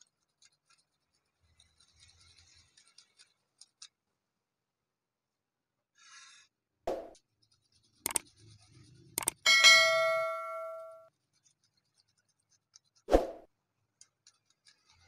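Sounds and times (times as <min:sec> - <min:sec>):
mouse clicks: 0:09.2 - 0:09.4
bright bell ding: 0:09.5 - 0:11.1.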